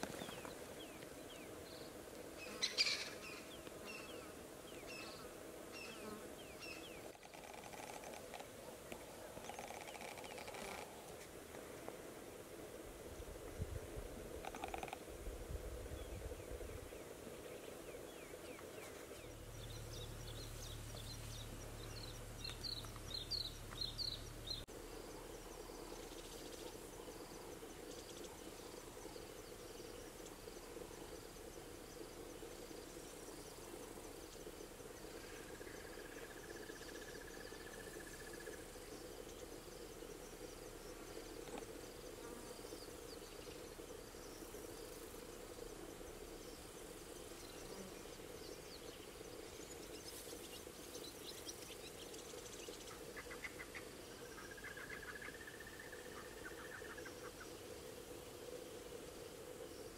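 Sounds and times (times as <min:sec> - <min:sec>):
frogs and insects chorus: 0:06.6 - 0:08.5, 0:09.4 - 0:11.0, 0:14.3 - 0:15.2, 0:21.8 - 0:59.9
low hum: 0:15.4 - 0:42.1.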